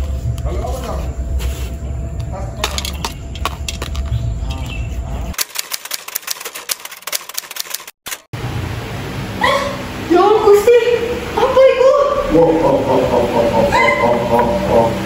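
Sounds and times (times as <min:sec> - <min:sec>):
low steady rumble: 0:08.4 - 0:15.0.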